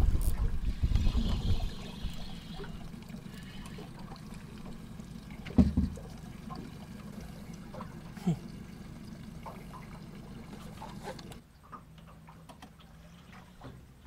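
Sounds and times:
water lapping against boat hull: 0:00.0 - 0:14.0
fishing reel: 0:00.2 - 0:03.9.

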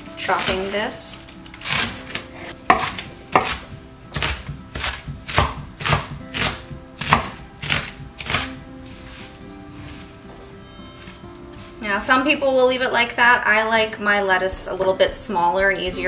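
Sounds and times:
knife chopping lettuce on board: 0:01.6 - 0:09.2.

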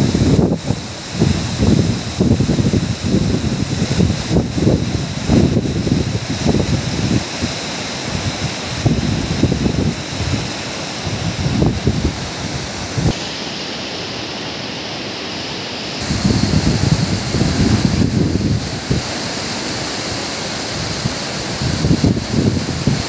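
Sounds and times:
wind buffeting microphone: 0:00.0 - 0:13.2, 0:16.0 - 0:19.2, 0:20.7 - 0:23.0
river rushing over boulders: 0:00.0 - 0:23.0.

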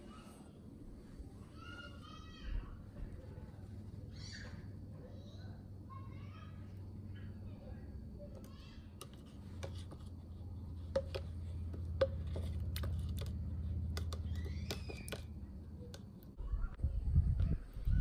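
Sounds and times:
low steady hum: 0:00.0 - 0:18.0
spoon scraping plastic cup: 0:09.0 - 0:15.2.

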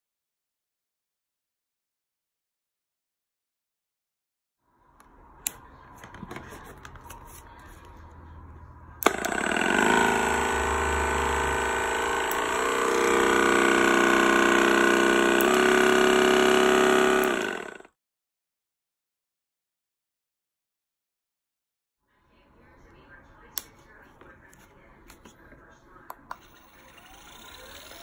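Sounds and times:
massage gun whining buzz: 0:09.0 - 0:17.9, 0:26.4 - 0:28.0.

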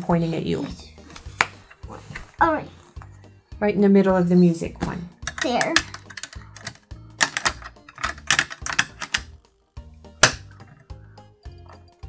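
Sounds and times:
sharp clicks of metal snaps: 0:05.2 - 0:09.4, 0:10.2 - 0:10.7.

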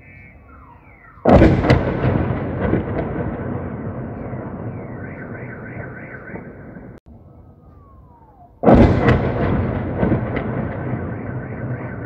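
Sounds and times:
car alarm wailing: 0:00.0 - 0:01.3, 0:04.2 - 0:08.6, 0:10.4 - 0:12.0
falling whistle: 0:00.0 - 0:01.3
shell explosion: 0:01.3 - 0:06.5, 0:08.6 - 0:12.0
sharp cracks: 0:08.6 - 0:12.0.

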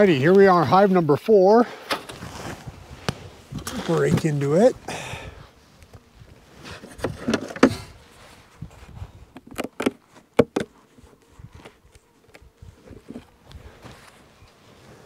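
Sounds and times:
knocks on wooden box: 0:09.6 - 0:10.7.

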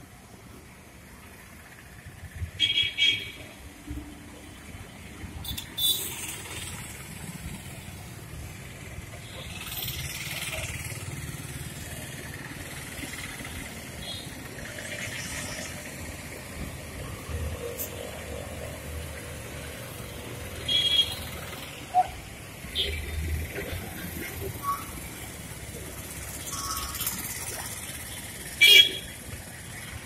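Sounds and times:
street traffic rumble: 0:00.0 - 0:30.0.

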